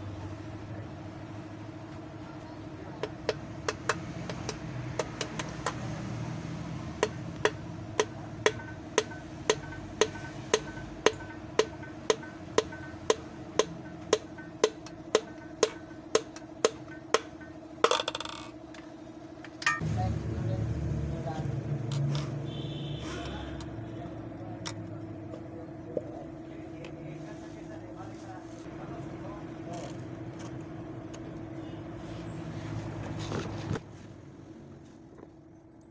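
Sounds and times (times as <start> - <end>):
sharp taps: 3.0 - 5.8, 7.0 - 17.6
low hum: 6.2 - 35.9.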